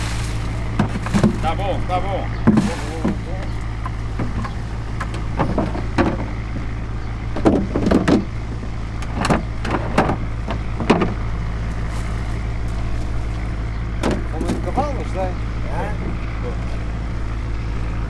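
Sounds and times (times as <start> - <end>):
plastic crates clattering: 0.0 - 3.6
engine humming: 0.0 - 18.0.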